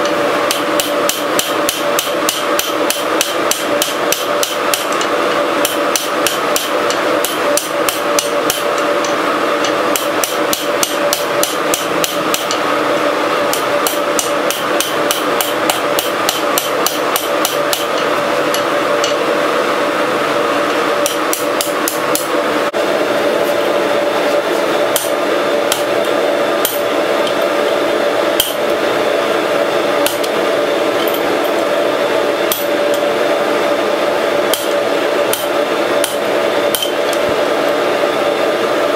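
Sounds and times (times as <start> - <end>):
steady hum: 0.0 - 38.9
hammer striking steel on anvil: 0.5 - 12.6, 13.5 - 19.2, 21.0 - 22.3, 24.9 - 25.9, 26.6 - 27.4, 28.4 - 28.7, 30.0 - 30.4, 32.5 - 33.0, 34.5 - 37.2.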